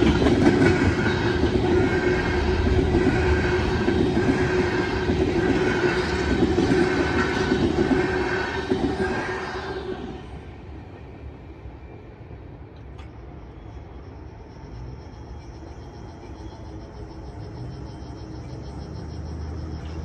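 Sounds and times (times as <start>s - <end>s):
freight train rumble: 0.0s - 20.0s
pulsing insect trill: 13.6s - 20.0s.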